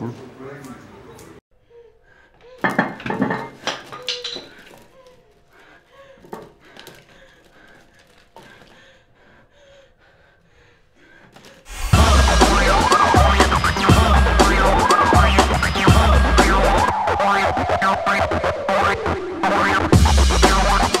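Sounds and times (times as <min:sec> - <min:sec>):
bathroom items clattering in a basket: 0:02.6 - 0:05.0.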